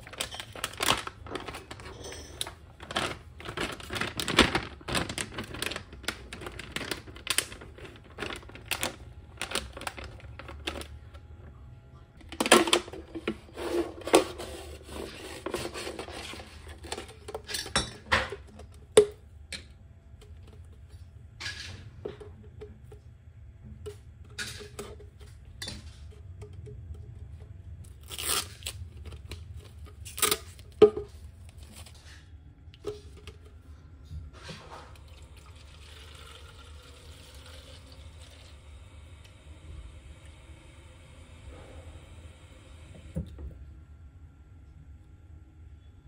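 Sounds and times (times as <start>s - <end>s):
plastic pouch crinkling: 0.0s - 10.8s.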